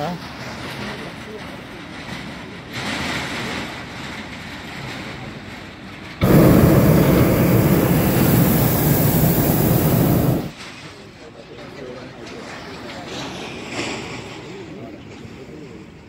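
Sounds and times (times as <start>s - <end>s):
propane burner blast: 6.2s - 10.6s.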